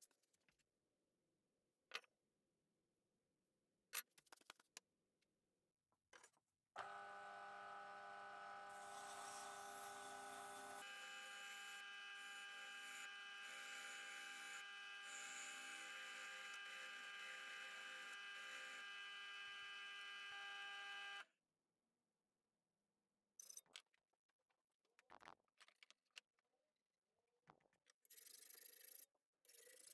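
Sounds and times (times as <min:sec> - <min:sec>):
drill press motor whine: 0:06.8 - 0:21.3.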